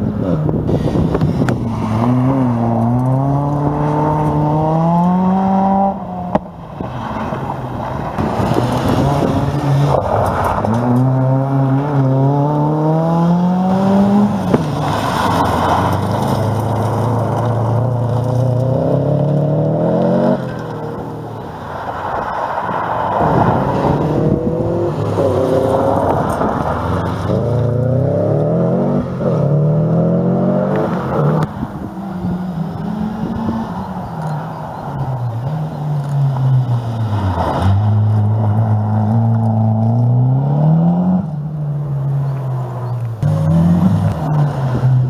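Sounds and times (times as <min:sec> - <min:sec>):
rally car engines revving: 0:00.0 - 0:45.0.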